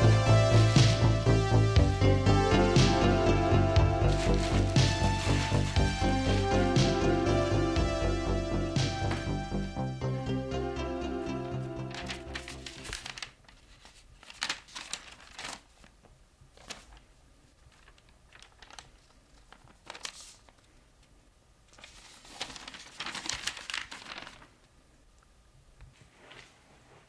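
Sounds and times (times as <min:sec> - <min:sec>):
music: 0:00.0 - 0:13.2
paper pages rustling and crinkling: 0:04.1 - 0:06.7, 0:11.8 - 0:24.7, 0:25.9 - 0:27.0.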